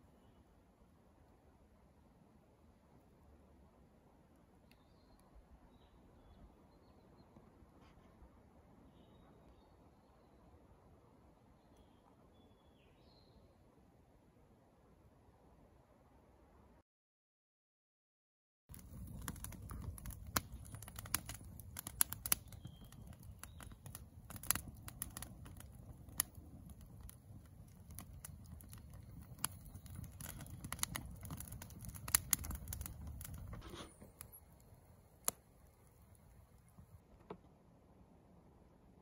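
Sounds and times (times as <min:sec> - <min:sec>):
campfire crackling and popping: 0:18.7 - 0:37.1.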